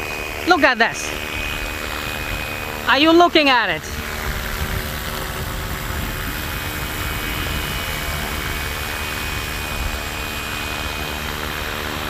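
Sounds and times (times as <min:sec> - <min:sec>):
rc helicopter motor whine: 0:00.0 - 0:12.0
wind rumble on microphone: 0:03.9 - 0:12.0.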